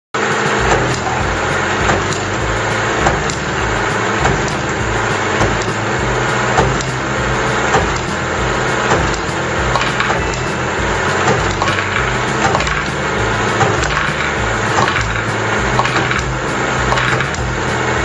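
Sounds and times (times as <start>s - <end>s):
small motor humming: 0.2s - 18.0s
plastic balls rattling on tracks: 0.3s - 18.0s.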